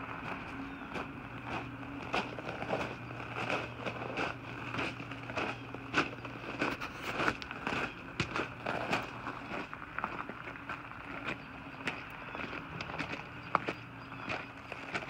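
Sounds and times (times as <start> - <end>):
footsteps on gravel: 0.0 - 15.0
steady low hum: 0.0 - 15.0.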